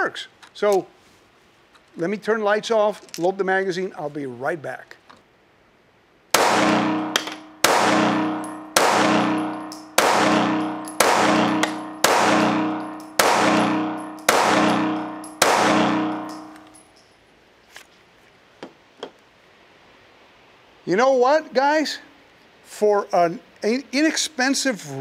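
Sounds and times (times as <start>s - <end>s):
pistol shots ringing indoors: 6.4s - 16.8s.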